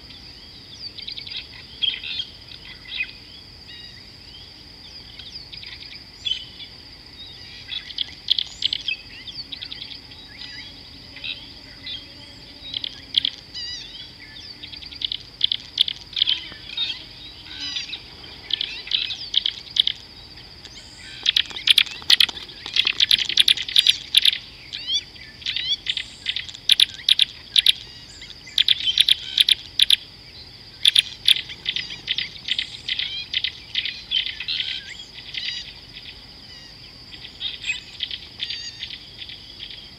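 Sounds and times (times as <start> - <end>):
birds chirping: 0.0 - 39.8
insect droning: 0.0 - 39.9.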